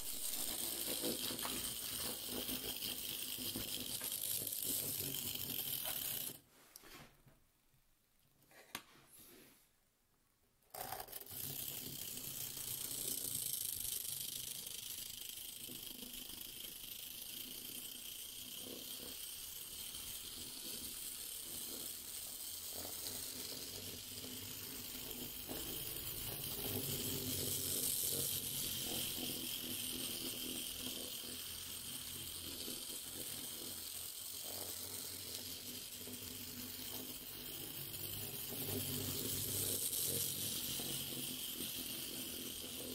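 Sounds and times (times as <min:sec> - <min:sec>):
wheels clicking on track: 0:11.1 - 0:42.9.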